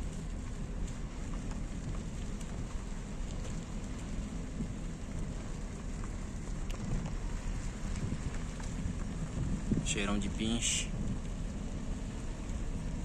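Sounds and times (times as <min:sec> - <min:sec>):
faint ticks: 0:00.0 - 0:09.5
wind buffeting microphone: 0:03.6 - 0:13.0.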